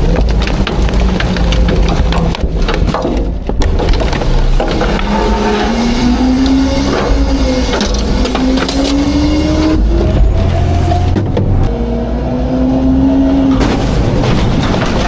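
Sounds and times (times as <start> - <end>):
wood breaking: 0.0 - 9.5, 13.5 - 15.0
hydraulics whining: 0.0 - 15.0
garbage truck engine revving: 3.7 - 15.0.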